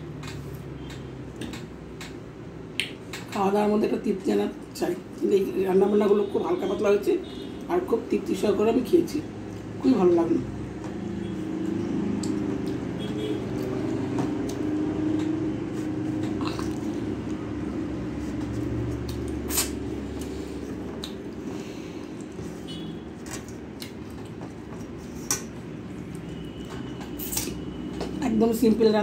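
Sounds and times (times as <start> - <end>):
chewing: 16.2 - 17.4, 18.4 - 22.4, 23.3 - 26.3.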